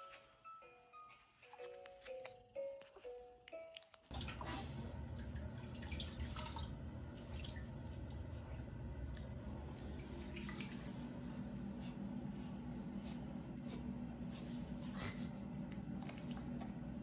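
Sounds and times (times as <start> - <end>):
water drips and splashes: 4.1 - 11.1
bath water lapping: 4.1 - 17.0.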